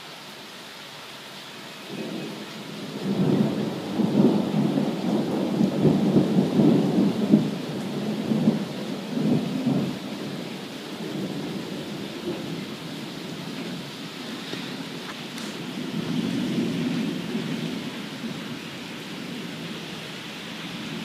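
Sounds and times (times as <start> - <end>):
steady rain hiss: 0.0 - 21.0
thunder rolling: 2.0 - 18.6.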